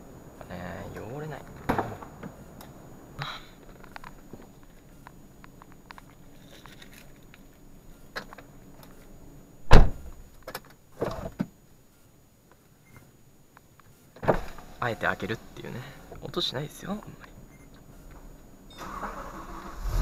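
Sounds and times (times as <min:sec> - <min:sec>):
faint steady hum: 0:00.0 - 0:20.0
knocks and thumps in car cabin: 0:09.7 - 0:11.5.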